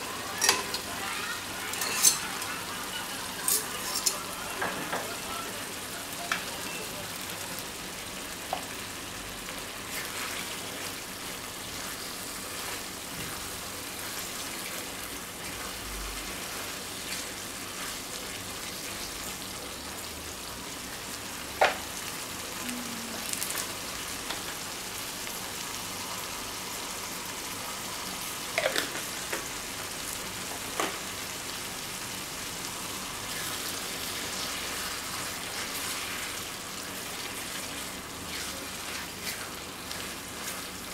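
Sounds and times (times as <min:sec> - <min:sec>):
pasta sizzling in a frying pan: 0:00.0 - 0:40.9
wooden spatula stirring pasta: 0:09.8 - 0:19.0, 0:33.3 - 0:40.9.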